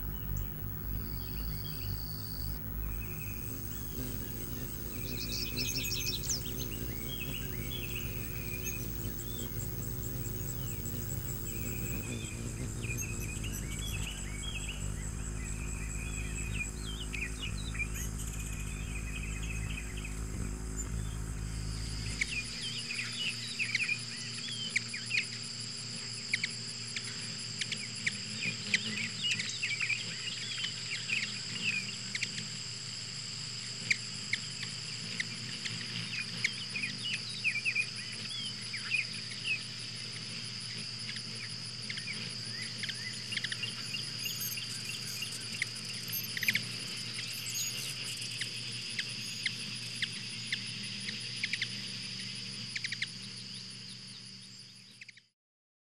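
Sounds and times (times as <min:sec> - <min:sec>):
insect high trill: 0:00.0 - 0:24.1, 0:41.9 - 0:53.9
short sharp insect chirps: 0:00.0 - 0:25.3, 0:38.8 - 0:55.3.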